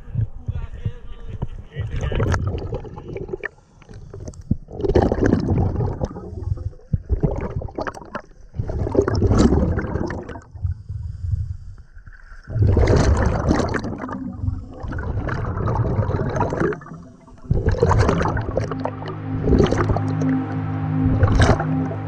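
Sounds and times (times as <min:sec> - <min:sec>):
scuba regulator exhaled bubbles: 0:02.0 - 0:10.8, 0:12.4 - 0:20.3.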